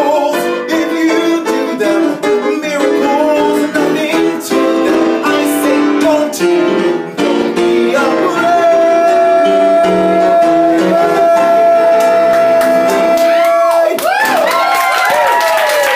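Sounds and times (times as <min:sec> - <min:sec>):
man singing a high note: 0:00.0 - 0:14.0
piano chords: 0:00.0 - 0:15.2
audience whooping and cheering: 0:10.9 - 0:15.9.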